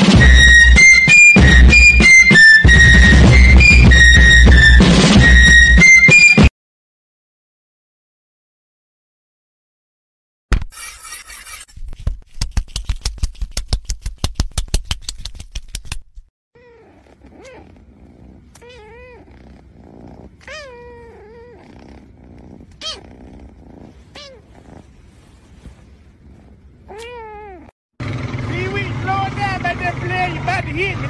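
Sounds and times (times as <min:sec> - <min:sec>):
kitten meowing: 0:16.6 - 0:22.0, 0:22.7 - 0:23.3, 0:24.0 - 0:24.8, 0:26.9 - 0:27.7
low purr: 0:16.6 - 0:27.8.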